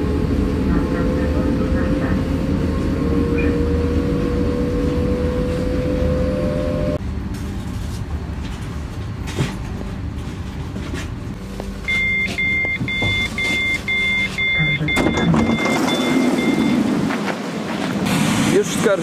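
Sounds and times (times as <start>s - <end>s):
train rumbling: 0.0s - 19.0s
door warning short beeps: 11.9s - 16.9s
sliding door opening: 15.0s - 17.4s.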